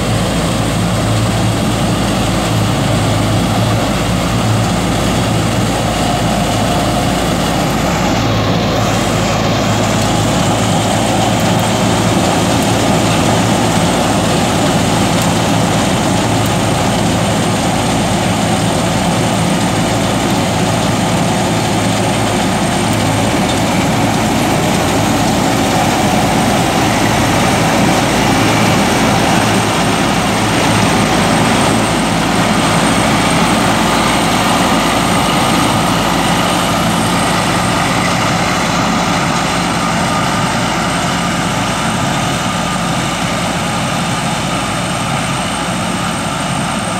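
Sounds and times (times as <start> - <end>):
harvester engine drone: 0.0 - 46.9.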